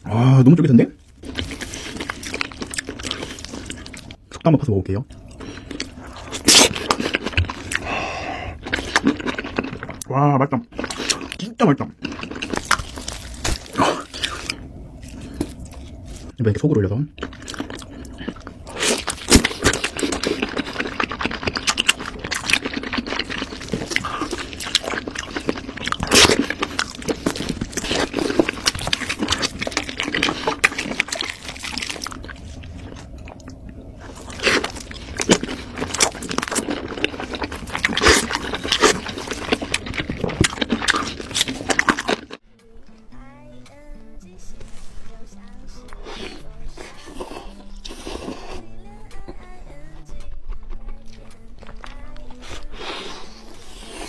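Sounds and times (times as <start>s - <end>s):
chewing food: 1.1s - 4.5s, 5.1s - 16.4s, 17.2s - 42.4s, 45.4s - 54.0s.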